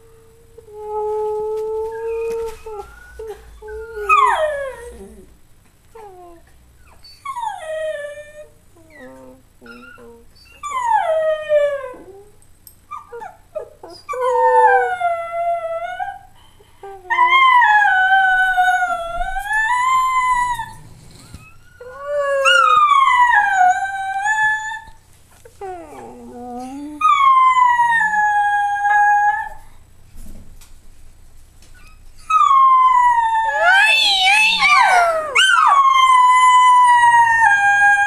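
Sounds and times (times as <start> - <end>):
dog howling: 32.3 - 38.0.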